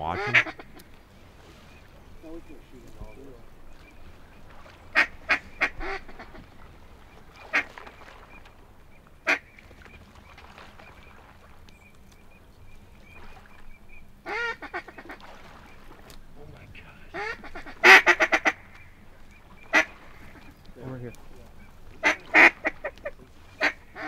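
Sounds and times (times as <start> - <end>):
duck quacking: 0.0 - 0.9, 4.9 - 6.5, 9.2 - 9.5, 14.2 - 15.8, 16.9 - 24.0.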